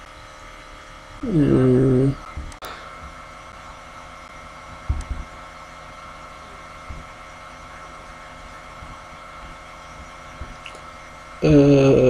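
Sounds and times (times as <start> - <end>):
background hum and hiss: 0.0 - 12.0
low thumps: 4.7 - 5.4.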